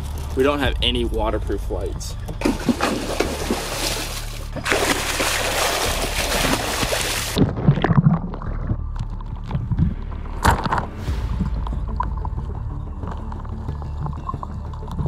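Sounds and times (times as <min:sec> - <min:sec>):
person splashing into the sea: 0:02.4 - 0:08.6.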